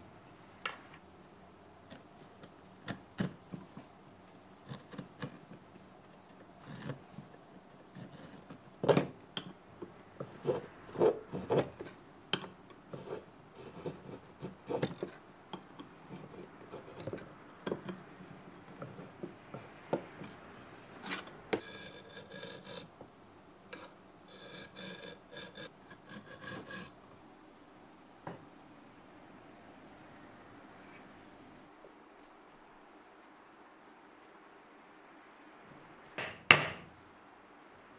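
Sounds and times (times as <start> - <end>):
chisel scraping wood: 4.6 - 9.2, 10.2 - 23.0, 23.7 - 27.0.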